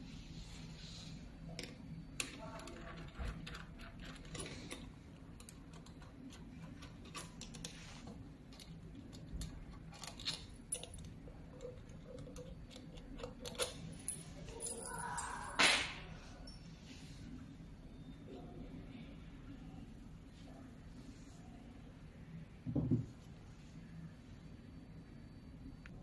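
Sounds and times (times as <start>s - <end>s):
steady low hum: 0.0s - 26.0s
clicks and clinks of parts: 1.6s - 16.6s.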